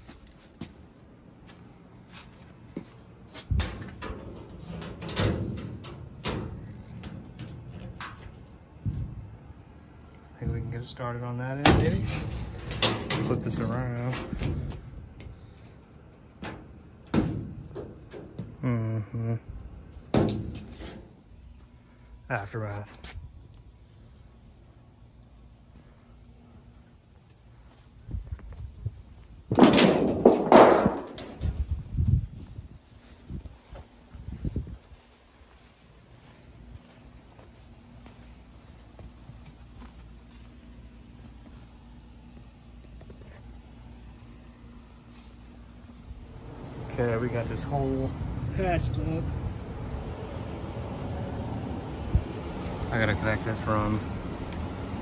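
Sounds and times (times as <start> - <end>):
sheet metal duct pieces clanking: 3.5 - 8.4, 11.6 - 14.7, 29.5 - 31.6
footsteps on grass: 31.7 - 43.6.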